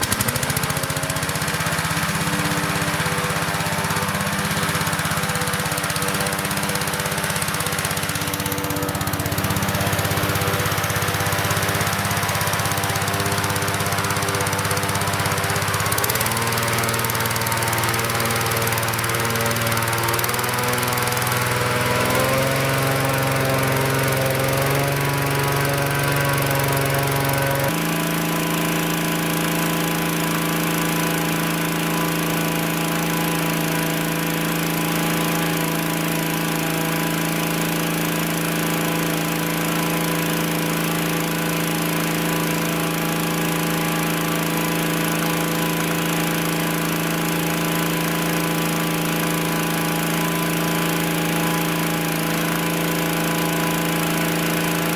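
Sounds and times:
small petrol engine fan running: 0.0s - 54.9s.

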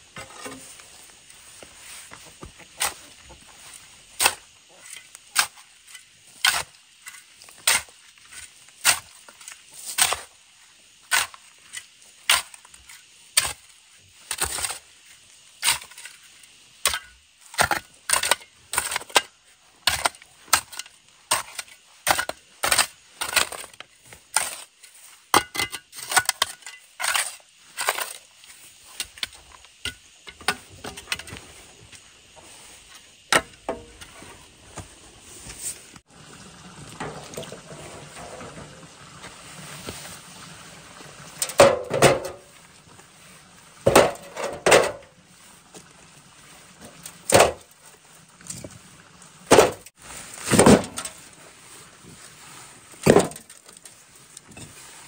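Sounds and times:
hoe chopping stony soil: 2.1s - 3.5s, 4.1s - 10.4s, 12.2s - 13.6s, 14.3s - 14.8s, 16.8s - 24.7s, 25.3s - 31.4s, 49.5s - 51.2s, 53.0s - 53.7s.

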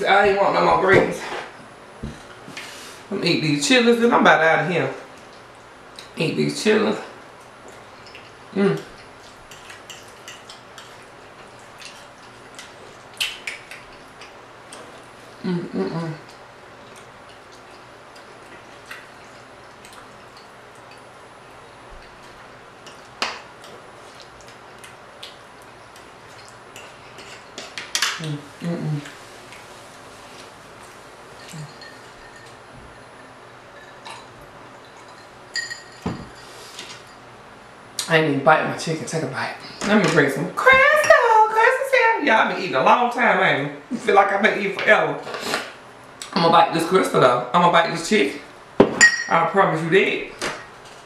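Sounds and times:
eating clicks and wet noises: 5.0s - 6.2s, 7.3s - 15.2s, 16.2s - 32.6s
tableware clinking: 31.4s - 32.6s, 33.7s - 34.3s, 35.0s - 37.2s, 48.8s - 49.4s.

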